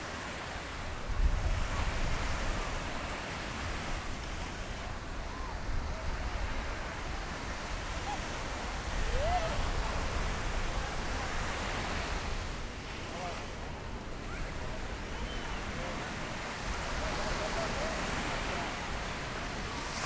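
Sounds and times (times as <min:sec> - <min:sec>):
wind rumble on microphone: 0:00.0 - 0:13.0
surf washing onto beach: 0:00.0 - 0:20.0.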